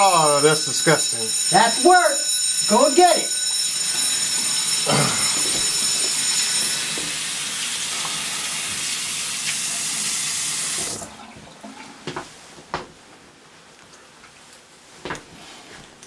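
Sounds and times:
mobile phone ringing: 0:00.0 - 0:08.4
sink tap running: 0:00.0 - 0:11.2.

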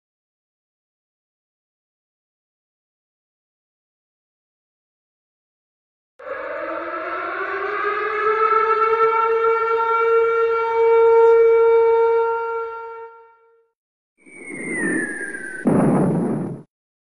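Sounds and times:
siren rising tone: 0:06.2 - 0:13.4, 0:14.2 - 0:16.6.

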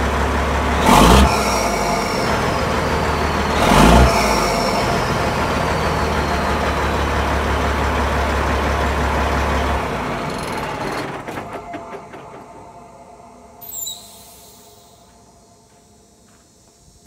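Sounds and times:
diesel truck engine idling: 0:00.0 - 0:15.0
high whine dropping in pitch: 0:00.4 - 0:08.5.

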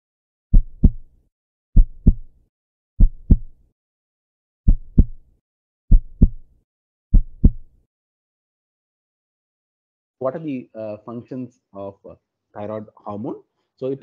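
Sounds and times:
heartbeat thumps: 0:00.5 - 0:01.1, 0:01.8 - 0:02.3, 0:03.0 - 0:03.6, 0:04.7 - 0:05.2, 0:05.9 - 0:06.5, 0:07.1 - 0:07.7.

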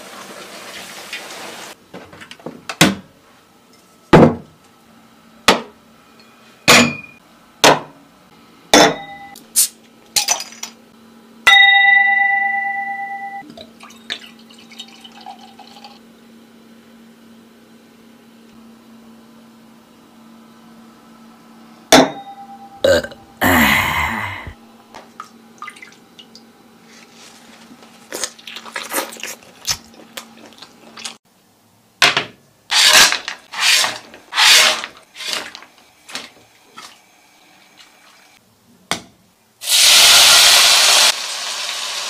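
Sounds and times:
glass ringing: 0:06.2 - 0:07.2, 0:08.8 - 0:09.4, 0:11.5 - 0:13.4, 0:22.0 - 0:23.2
beer pouring into glass: 0:13.5 - 0:16.0.

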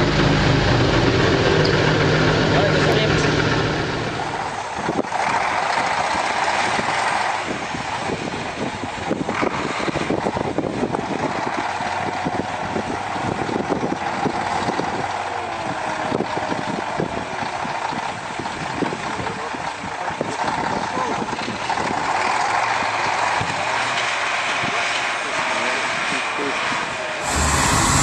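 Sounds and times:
truck engine running: 0:00.0 - 0:28.0
faint whine: 0:27.2 - 0:28.0.

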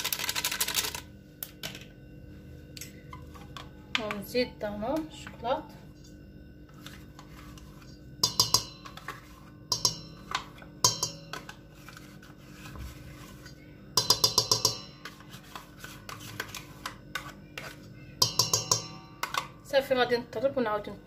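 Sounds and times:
metal spoon scraping a bowl: 0:06.7 - 0:19.4.

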